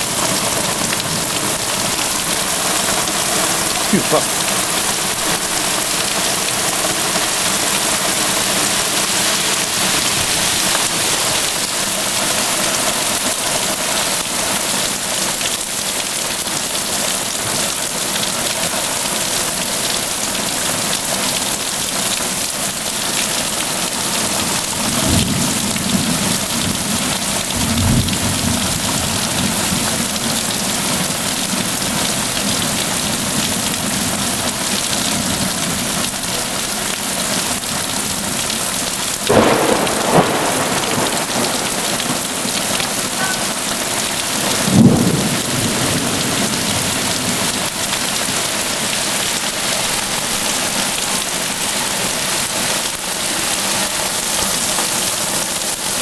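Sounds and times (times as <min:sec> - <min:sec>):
heavy rain pouring: 0:00.0 - 0:56.0
thunder rolling: 0:39.3 - 0:47.7.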